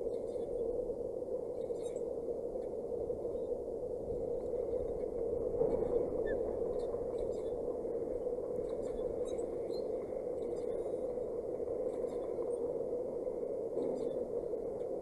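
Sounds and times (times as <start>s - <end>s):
faint high squeaks and ticks: 0.0s - 0.6s, 1.5s - 2.8s, 5.6s - 7.8s, 8.6s - 12.8s, 13.8s - 15.0s
wind rushing over microphone: 0.0s - 15.0s.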